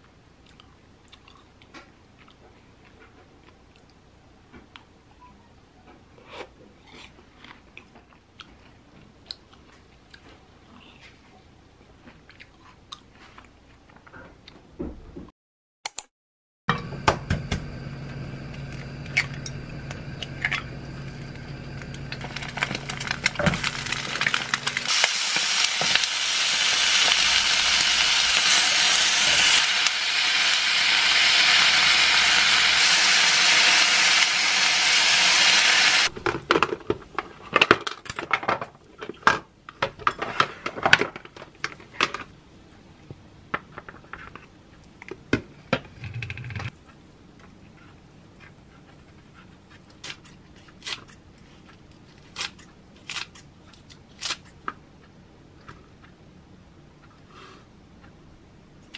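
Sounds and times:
steady low hum: 16.7s - 26.3s
eggs and pork frying in oil: 18.7s - 36.2s.

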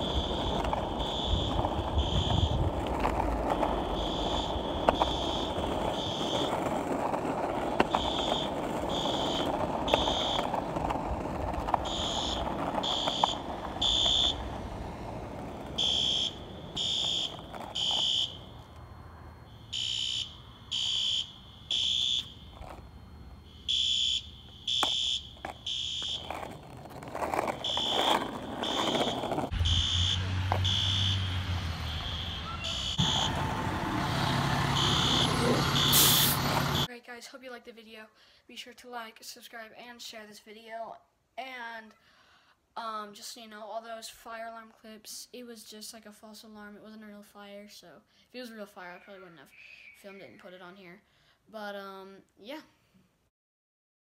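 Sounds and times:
fire alarm beeping: 0.0s - 2.7s, 3.5s - 6.5s, 11.8s - 14.4s, 15.8s - 26.3s, 27.6s - 36.9s
engine hum: 0.0s - 23.7s, 24.3s - 36.9s
low vehicle rumble: 27.8s - 36.9s.

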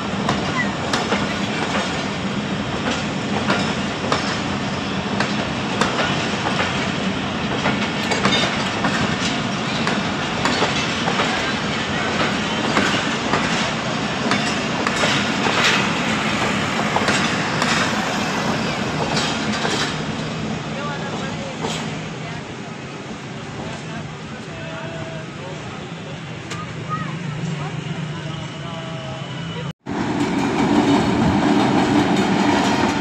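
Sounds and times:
train wheels rumbling on track: 0.0s - 33.0s
wheels clacking over rail joints: 0.2s - 22.0s, 29.9s - 33.0s.

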